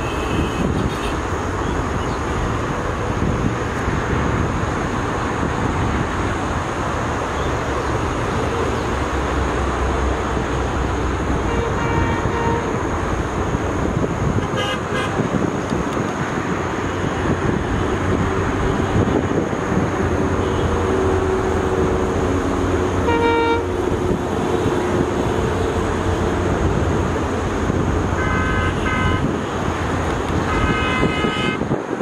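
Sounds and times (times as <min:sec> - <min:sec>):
horn tooting: 0:11.4 - 0:12.8, 0:14.4 - 0:15.2, 0:23.0 - 0:23.8, 0:28.2 - 0:29.4, 0:30.4 - 0:31.7.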